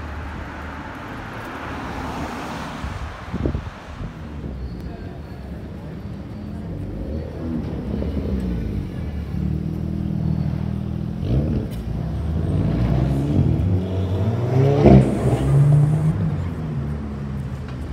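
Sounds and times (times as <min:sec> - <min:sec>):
car engine accelerating: 0:06.1 - 0:17.9.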